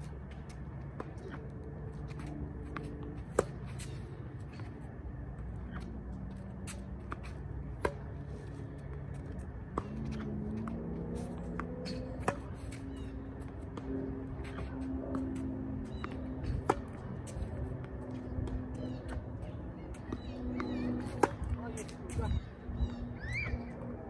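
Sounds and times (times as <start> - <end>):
tennis balls bouncing: 0.0 - 24.0
tennis racket hitting ball: 20.6 - 21.8.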